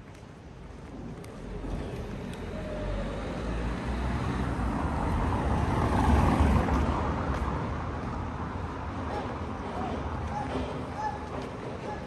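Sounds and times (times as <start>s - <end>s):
vehicle passing by: 1.6s - 7.2s.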